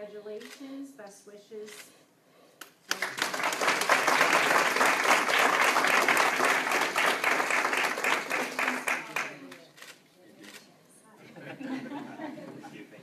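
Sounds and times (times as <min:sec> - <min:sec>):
crowd applauding: 0:02.9 - 0:09.6.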